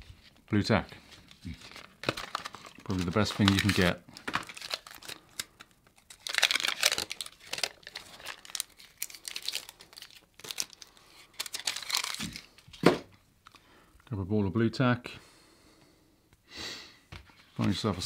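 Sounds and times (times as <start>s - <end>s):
cardboard and paper crinkling: 1.0s - 13.0s.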